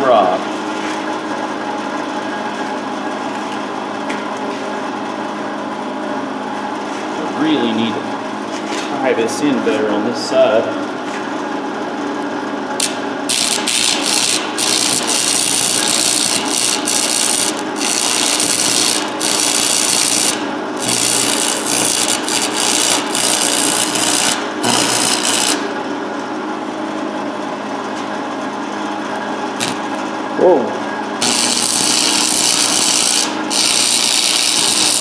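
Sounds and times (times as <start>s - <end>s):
electric grinder motor: 12.8s - 25.6s, 31.2s - 35.0s
grinder grinding steel: 12.8s - 25.6s, 31.2s - 35.0s.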